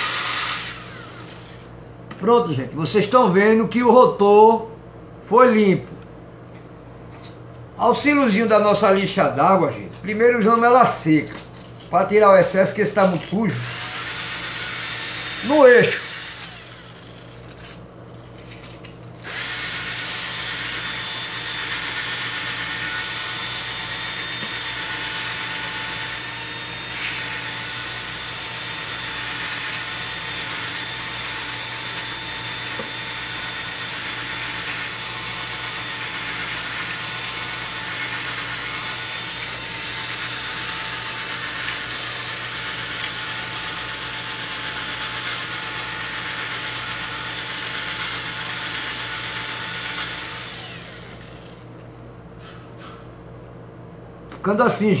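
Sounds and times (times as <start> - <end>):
cordless drill whining: 0.0 - 1.7, 13.6 - 17.8, 19.2 - 51.6.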